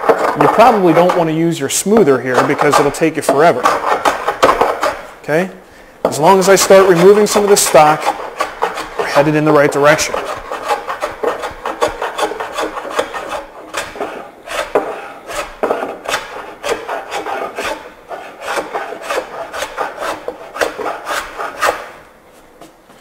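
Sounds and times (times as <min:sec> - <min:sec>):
hand plane shaving wood: 0:00.0 - 0:05.1, 0:06.2 - 0:22.0.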